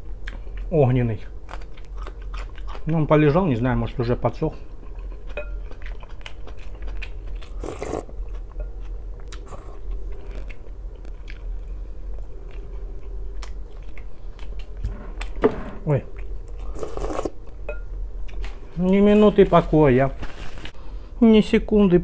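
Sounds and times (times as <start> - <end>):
chewing and biting: 1.4 - 3.0, 4.8 - 15.4.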